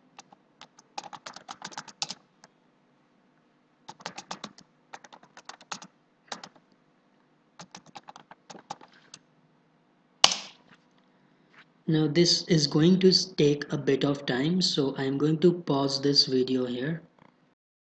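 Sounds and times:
computer keyboard typing: 0.2 - 2.2, 3.9 - 6.6, 7.6 - 9.2.

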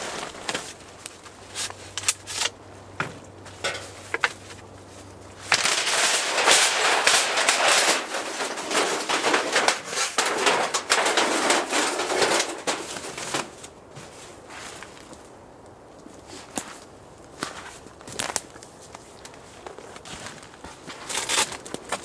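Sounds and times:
stovepipe scraping and rattling: 1.5 - 4.6, 5.3 - 13.7.

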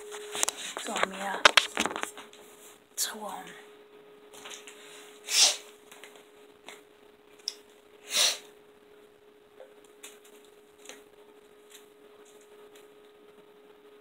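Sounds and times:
loud breaths through nose: 4.8 - 5.7, 8.0 - 8.5.

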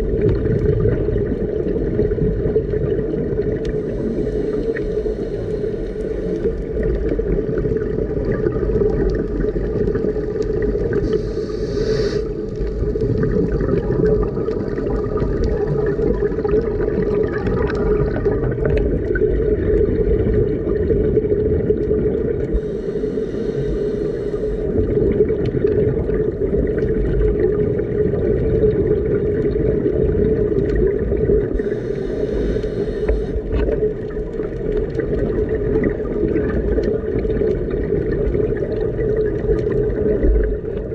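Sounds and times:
underwater boat engine drone: 0.0 - 40.9
scuba regulator breaths: 3.7 - 6.8, 10.9 - 12.9, 22.5 - 24.9, 31.5 - 33.8.

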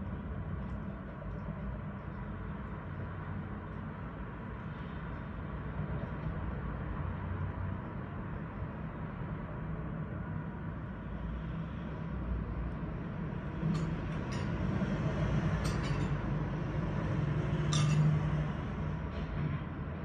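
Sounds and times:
city street traffic hum: 0.0 - 20.0.

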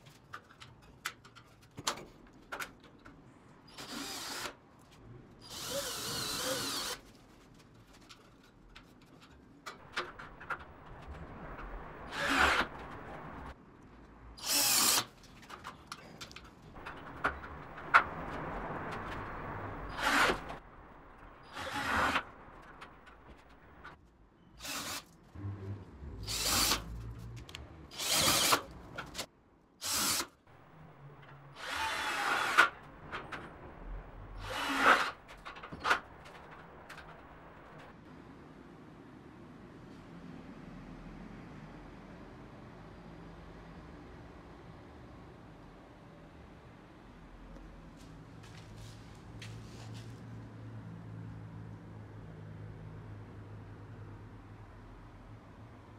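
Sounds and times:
drill driving screws into steel: 3.7 - 4.6, 5.4 - 7.0, 14.4 - 15.1, 21.5 - 22.3, 24.6 - 25.1, 26.2 - 26.8, 27.9 - 29.2, 29.8 - 30.4, 31.6 - 32.8, 34.4 - 36.0.

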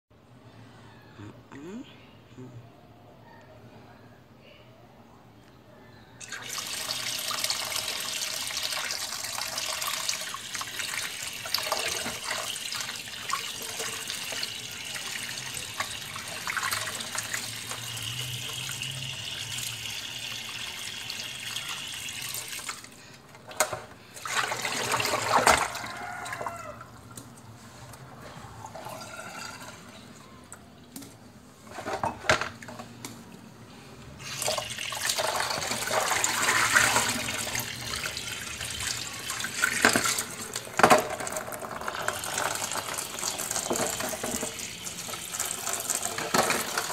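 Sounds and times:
tap water running into basin: 6.2 - 27.2, 34.2 - 46.9.

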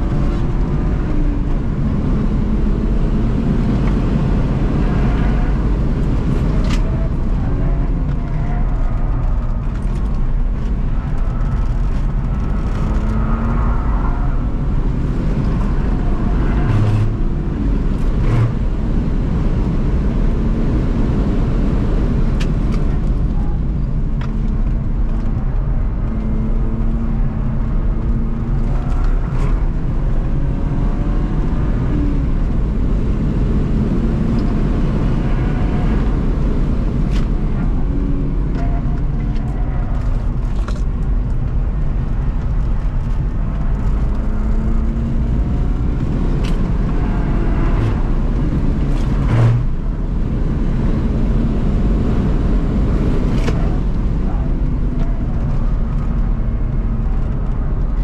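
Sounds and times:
car engine revving: 0.0 - 23.1, 24.8 - 58.0
road and tyre noise: 0.0 - 58.0.

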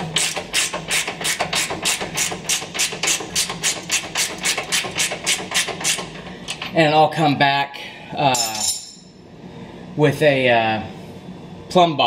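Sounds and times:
hand ratchet clicking: 0.1 - 6.6.

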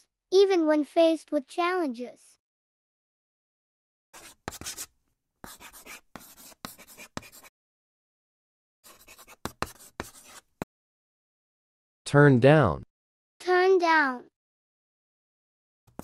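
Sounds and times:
marker writing scratchy strokes: 4.2 - 7.5, 8.8 - 10.7.

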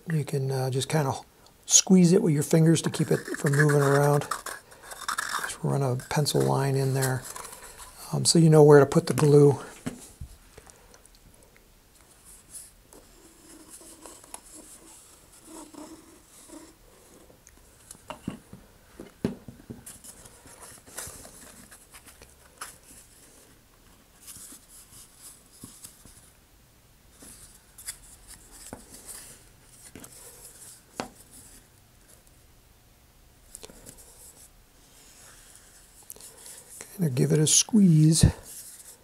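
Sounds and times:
hands rubbing cardboard tube: 2.5 - 8.2, 12.2 - 17.3.

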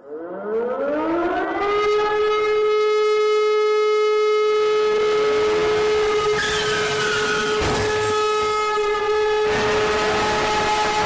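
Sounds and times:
alarm siren steady high tone: 0.0 - 11.0
second siren tone: 0.0 - 11.0.

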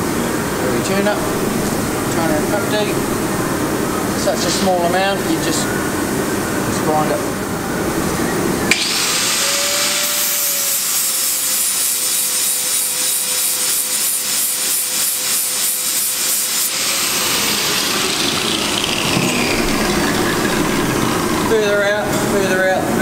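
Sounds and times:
grinder spinning down: 8.7 - 11.7, 14.3 - 22.0
angle grinder grinding metal: 8.7 - 21.4.

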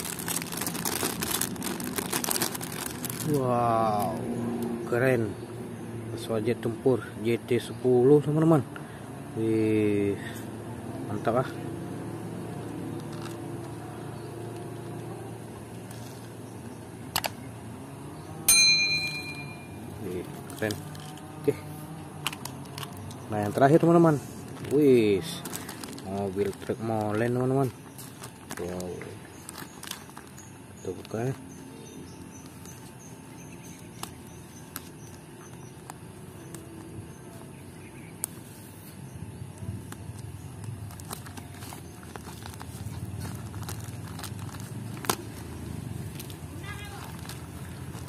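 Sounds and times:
plastic packaging clicks and crinkling: 0.0 - 4.1, 12.9 - 13.8, 20.1 - 21.3, 22.2 - 23.8, 24.4 - 31.4, 39.8 - 48.0
outdoor background noise: 0.0 - 48.0
bright bell ding: 18.5 - 19.8.

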